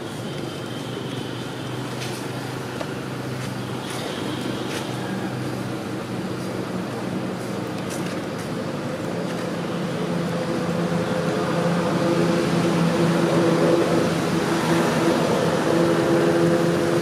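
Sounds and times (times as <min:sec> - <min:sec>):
motor engine droning: 0:08.9 - 0:17.0.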